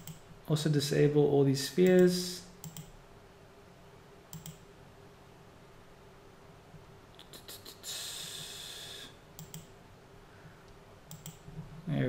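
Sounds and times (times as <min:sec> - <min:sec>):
computer mouse clicking: 0:00.0 - 0:00.2, 0:01.8 - 0:02.9, 0:04.3 - 0:04.6, 0:09.4 - 0:09.7, 0:11.1 - 0:11.4
breathy hiss: 0:07.2 - 0:09.3.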